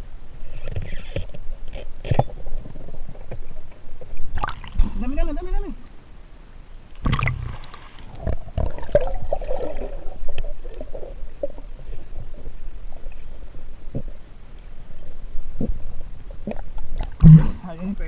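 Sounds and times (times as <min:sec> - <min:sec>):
underwater rumbling and gurgling: 0:00.0 - 0:06.0, 0:07.0 - 0:18.0
sharp underwater knocks: 0:17.0 - 0:17.6.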